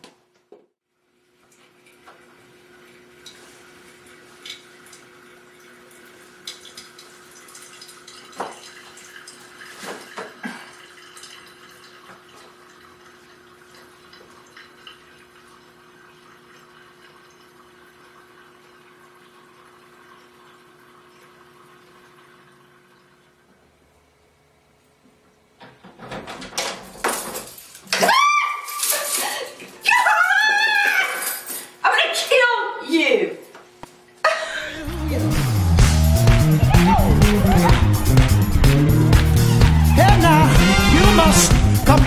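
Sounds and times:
low hum: 34.6 - 42.0.

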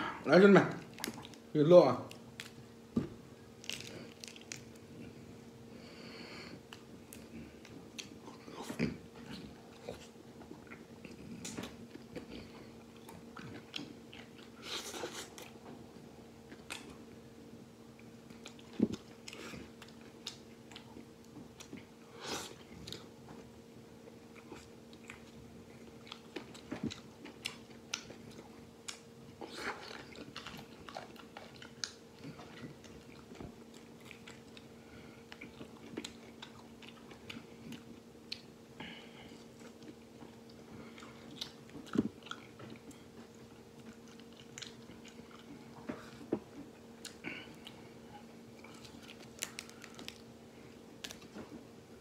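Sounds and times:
man biting and chewing: 24.1 - 38.5, 39.4 - 50.3.

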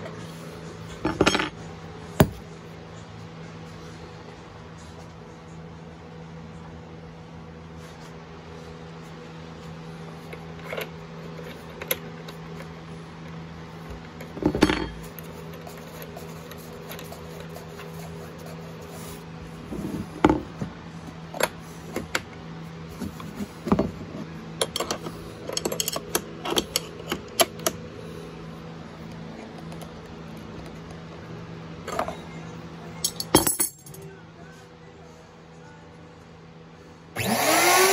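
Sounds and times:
steady low hum: 0.0 - 37.9
metal tools clinking: 33.0 - 34.1.

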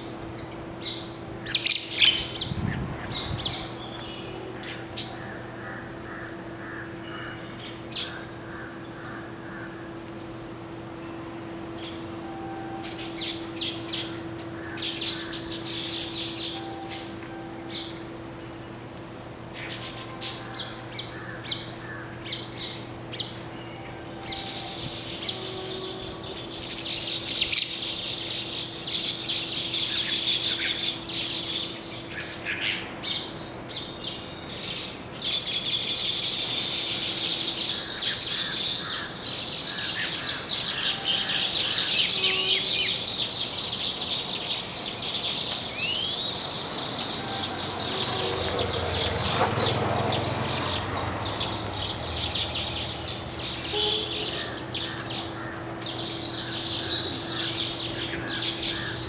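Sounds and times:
birds chattering and chirping: 0.0 - 59.0.

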